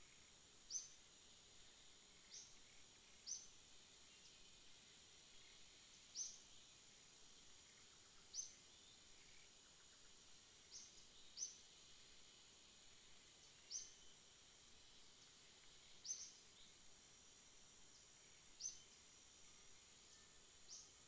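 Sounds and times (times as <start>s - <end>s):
high insect drone: 0.0s - 21.0s.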